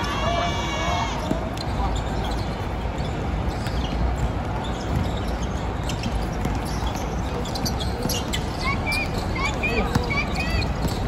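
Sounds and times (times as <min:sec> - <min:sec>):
shoe squeaks: 0:01.2 - 0:11.0
basketball bouncing on floor: 0:10.8 - 0:11.0.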